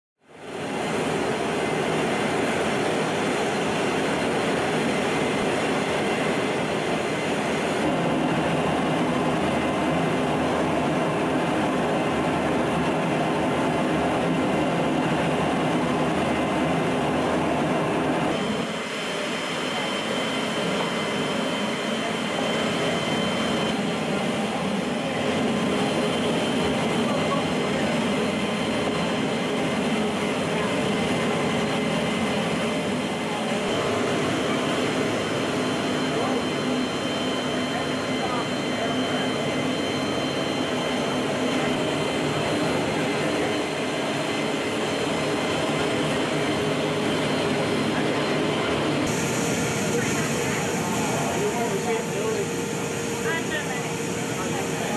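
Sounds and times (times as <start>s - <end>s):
jet engine and airflow noise: 0.2s - 54.9s
faint high whine: 18.3s - 54.9s.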